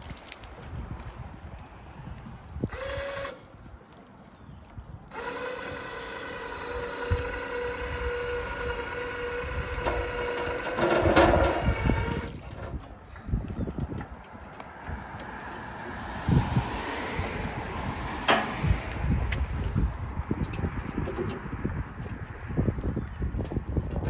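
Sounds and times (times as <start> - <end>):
electric hoist motor whine: 5.1 - 12.7
metal carts rattling: 9.8 - 12.8.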